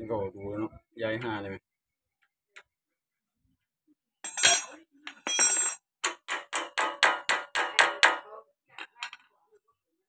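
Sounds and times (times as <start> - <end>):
hammer tapping on metal: 6.0 - 8.3.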